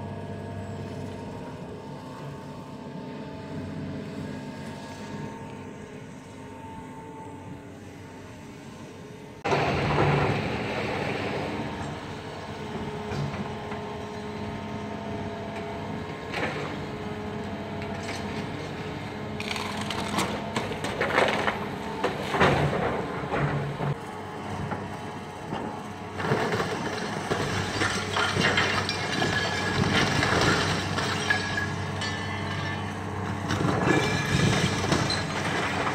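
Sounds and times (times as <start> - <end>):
excavator diesel engine running: 0.0 - 35.9
wood and debris cracking and crashing: 19.4 - 24.0, 26.1 - 35.9.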